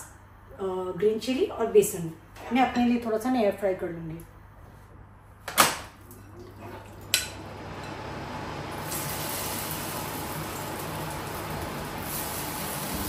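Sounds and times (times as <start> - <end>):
batter sizzling in oil: 8.6 - 13.0.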